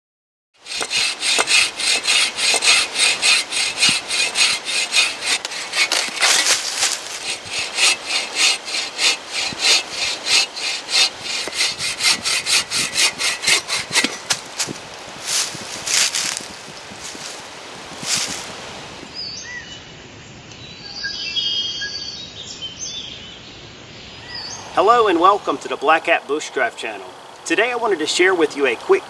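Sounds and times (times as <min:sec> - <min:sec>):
hand saw cutting log: 0:00.6 - 0:17.4, 0:18.0 - 0:18.5.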